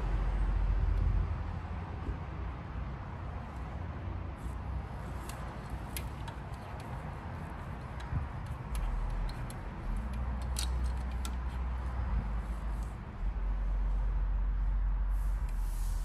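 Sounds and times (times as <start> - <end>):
small tools clicking: 5.2 - 11.8
steady low rumble: 6.9 - 16.0.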